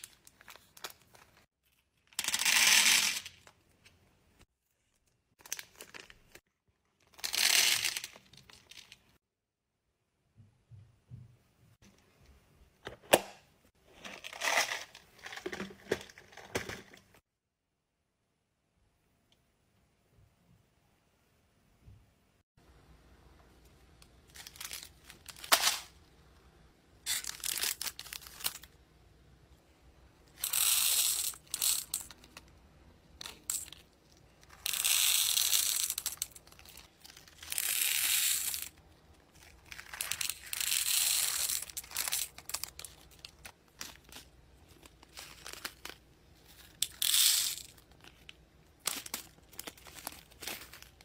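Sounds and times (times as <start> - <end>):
beads rattling into a box: 14.0 - 16.8, 30.4 - 32.4, 34.4 - 38.8, 39.7 - 48.0
plastic bags crinkling: 41.4 - 51.0.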